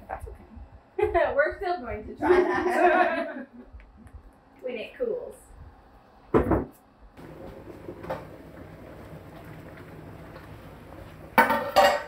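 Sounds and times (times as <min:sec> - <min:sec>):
water boiling with bubbling hiss: 0:07.2 - 0:12.0.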